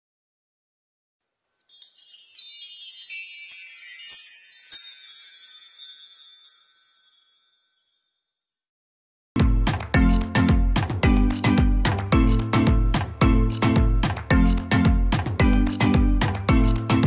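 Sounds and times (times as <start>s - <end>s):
shimmering bell-like chimes: 1.4s - 8.7s.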